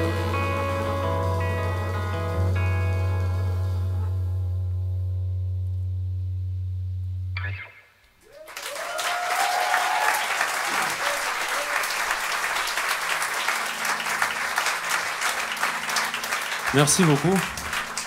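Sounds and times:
band holding low note: 0:00.0 - 0:07.7
cheering whoops: 0:08.2 - 0:12.2
audience applause: 0:08.2 - 0:18.0.

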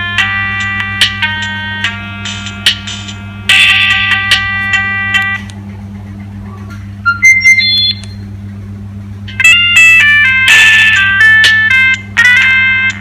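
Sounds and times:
mobile phone ringtone: 0:03.2 - 0:05.4, 0:07.1 - 0:08.0, 0:09.4 - 0:13.0
short electronic beeps: 0:07.0 - 0:08.3.

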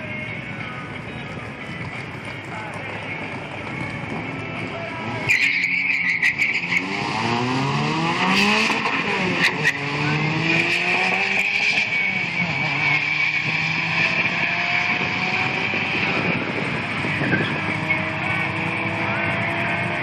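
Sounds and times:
drag racing cars at full throttle: 0:00.0 - 0:20.0.

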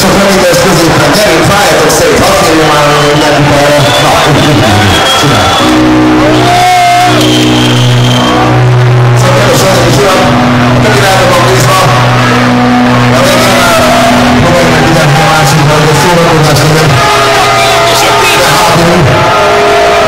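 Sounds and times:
live band playing heavy music: 0:00.0 - 0:20.0.

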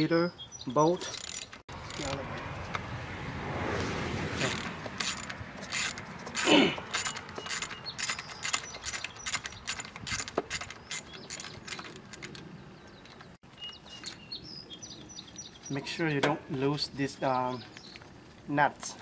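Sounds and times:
socket ratchet clicking: 0:04.4 - 0:12.3.

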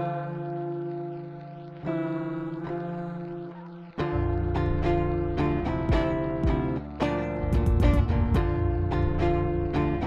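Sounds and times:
plucked string notes: 0:00.0 - 0:10.0
held low bass: 0:07.4 - 0:10.0.

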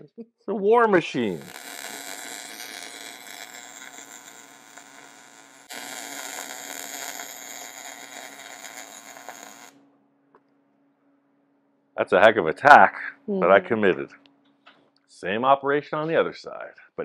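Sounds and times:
welding arc crackling: 0:01.2 - 0:09.8.

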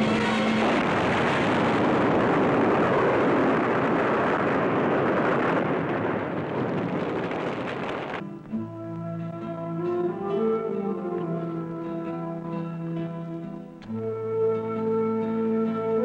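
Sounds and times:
loud explosion: 0:00.0 - 0:08.2.

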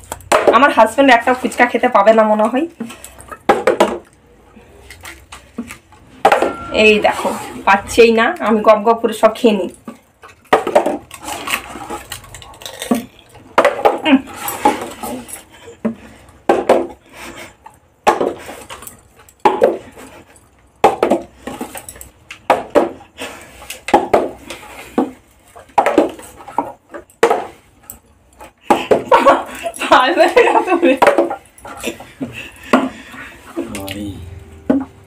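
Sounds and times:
plastic bottle clattering on floor: 0:02.8 - 0:04.2, 0:09.8 - 0:17.0, 0:18.0 - 0:20.2, 0:20.8 - 0:23.0, 0:23.6 - 0:27.6, 0:30.6 - 0:32.0.

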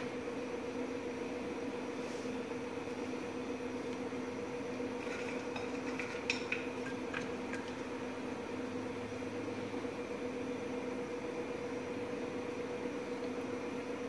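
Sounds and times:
low two-tone hum: 0:00.0 - 0:14.0.

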